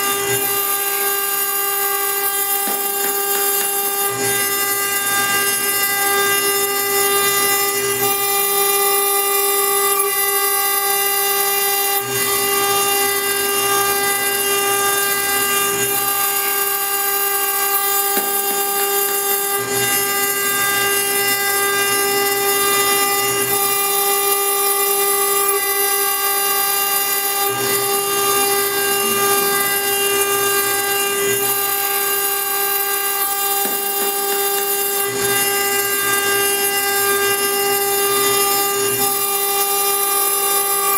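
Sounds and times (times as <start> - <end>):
router spindle whining: 0.0 - 40.9.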